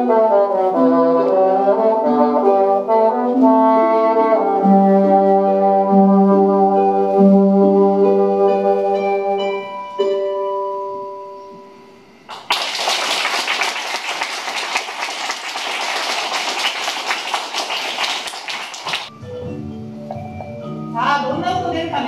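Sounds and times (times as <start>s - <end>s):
bassoon playing: 0.0s - 9.0s
children clapping: 12.3s - 19.1s.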